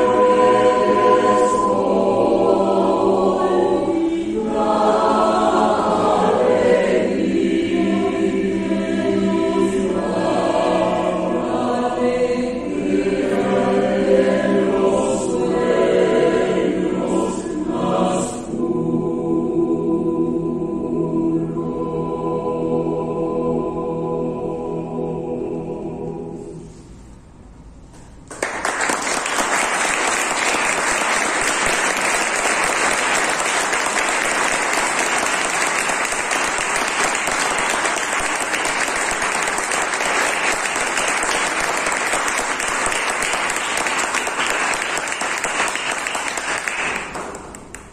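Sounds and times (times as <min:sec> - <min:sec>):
choir holding a chord: 0:00.0 - 0:27.0, 0:29.2 - 0:47.5
audience applause: 0:28.3 - 0:47.8.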